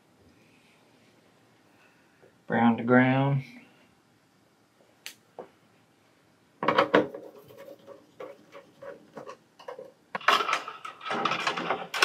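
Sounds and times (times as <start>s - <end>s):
wires rubbing and rustling: 6.7s - 12.0s.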